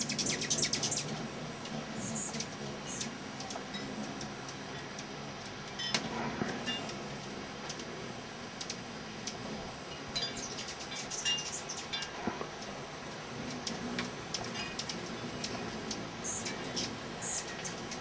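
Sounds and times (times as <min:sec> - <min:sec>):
hummingbird chips and squeaks: 0:00.0 - 0:07.9, 0:08.6 - 0:12.2, 0:13.4 - 0:18.0.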